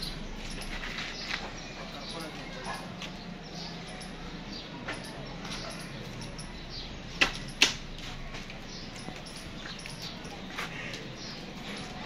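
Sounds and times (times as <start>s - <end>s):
sharp clicks: 4.8s - 7.9s.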